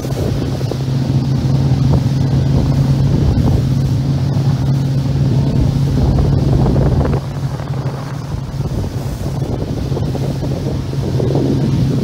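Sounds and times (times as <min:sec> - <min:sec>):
speedboat engine droning: 0:00.0 - 0:12.0
water rushing along hull: 0:00.0 - 0:12.0
wind buffeting microphone: 0:00.0 - 0:12.0.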